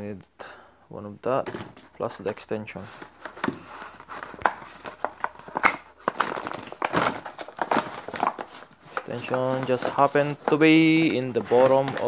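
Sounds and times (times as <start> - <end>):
plastic crinkling: 2.1 - 12.0
metal tools rattling in plastic tray: 4.9 - 12.0.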